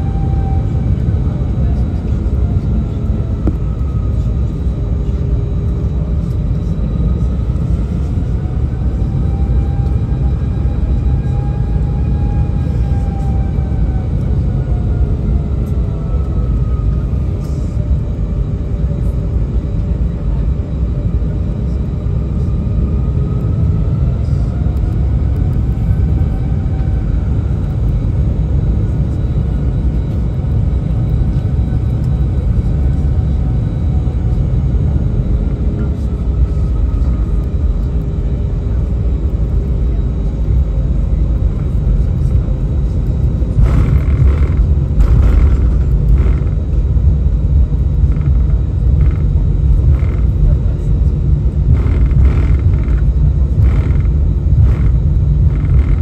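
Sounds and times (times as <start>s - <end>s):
aircraft engine rumble: 0.0s - 56.0s
loud rush of noise: 43.6s - 46.6s.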